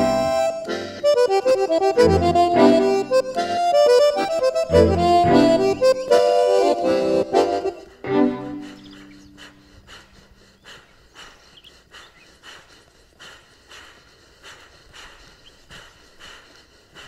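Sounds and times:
accordion chord: 0.0 - 9.0
faint bird chirps: 8.6 - 9.5, 10.1 - 12.4.

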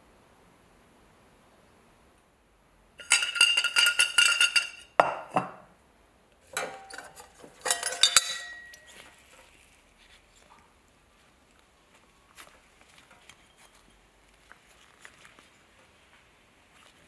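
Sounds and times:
metal buckle clinking on glass: 3.0 - 5.0, 6.6 - 9.0
glass ringing: 3.0 - 5.5, 7.6 - 8.9.

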